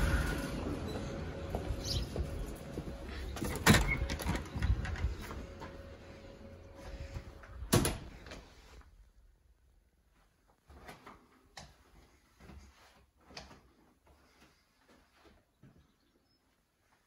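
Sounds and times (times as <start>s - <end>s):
door shutting: 0.0s - 6.0s, 7.0s - 8.6s
outdoor background noise: 0.0s - 17.0s.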